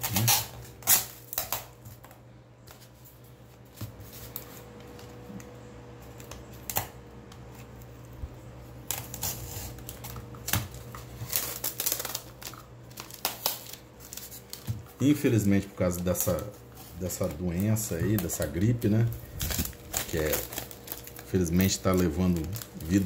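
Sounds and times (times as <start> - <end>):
knife scratching packing tape: 0.0 - 1.7
tape being peeled off: 0.0 - 2.9, 8.8 - 14.7.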